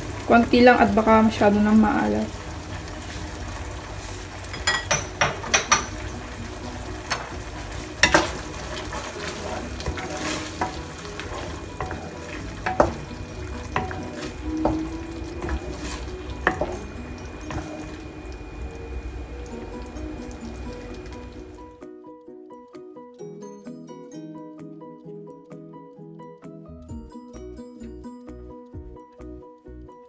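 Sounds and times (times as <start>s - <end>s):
bubbling sizzle: 0.0s - 21.8s
spatula knocking on pan: 4.5s - 6.2s, 7.0s - 18.0s
wooden spatula scraping pan: 7.0s - 18.0s.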